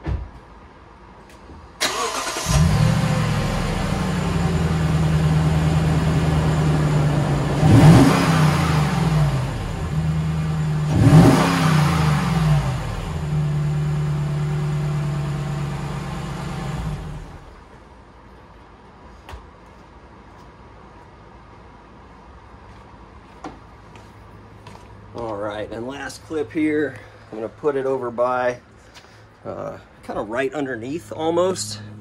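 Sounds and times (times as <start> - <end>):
engine cranking and starting: 1.8 - 4.0
engine idling: 1.8 - 17.6
engine revving: 1.8 - 17.6.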